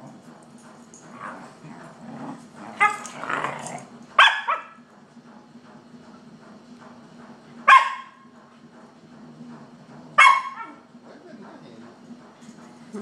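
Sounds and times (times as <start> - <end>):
dog barking: 4.2 - 4.8, 7.6 - 8.3, 10.2 - 10.8.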